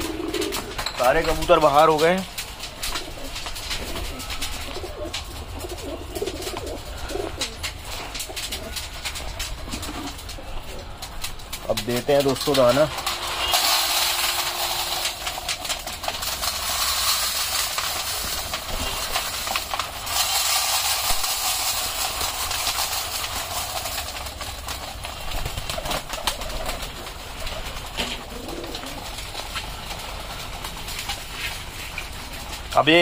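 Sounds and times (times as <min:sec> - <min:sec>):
pigeons cooing: 0:00.0 - 0:01.6, 0:02.4 - 0:11.6, 0:22.8 - 0:32.3
pigeons pecking and scuffling: 0:00.0 - 0:33.0
grain pouring onto trays: 0:11.6 - 0:27.9.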